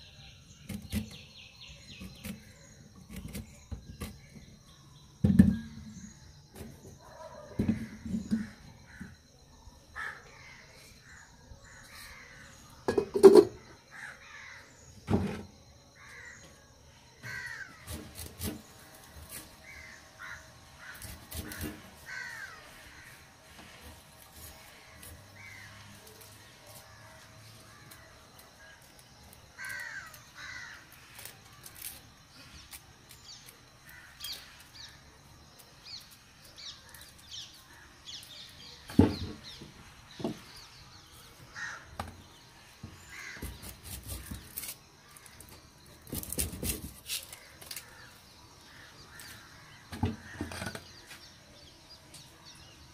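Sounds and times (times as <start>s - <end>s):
pots and utensils knocking: 12.9s - 13.6s
crows cawing: 13.9s - 14.7s, 17.2s - 17.9s, 19.6s - 23.2s, 29.6s - 30.9s, 41.5s - 42.0s, 43.1s - 43.6s.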